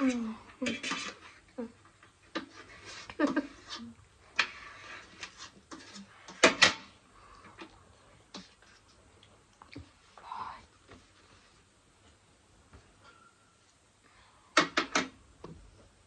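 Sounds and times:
person giggling: 0:03.0 - 0:04.0.

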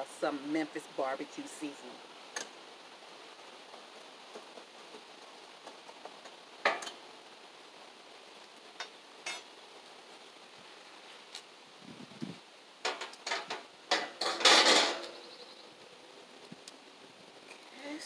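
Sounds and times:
metal grill grate clanking: 0:06.6 - 0:07.0, 0:12.8 - 0:15.2.

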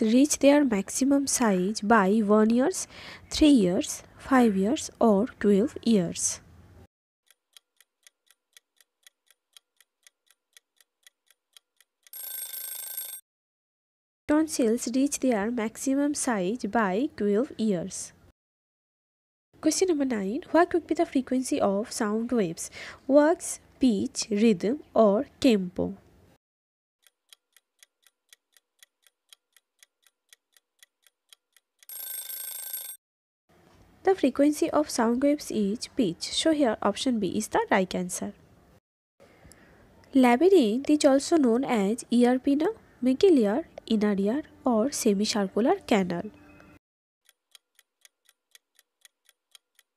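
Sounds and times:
clock ticking: 0:07.3 - 0:12.2, 0:27.0 - 0:31.9, 0:47.2 - 0:49.9
ringing alarm: 0:31.9 - 0:33.0.

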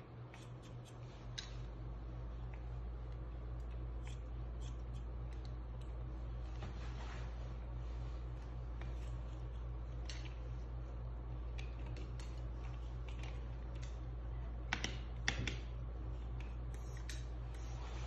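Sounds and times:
steady low hum: 0:00.0 - 0:18.0
scissors snipping hair: 0:00.3 - 0:01.7, 0:02.5 - 0:06.0, 0:11.5 - 0:14.1.

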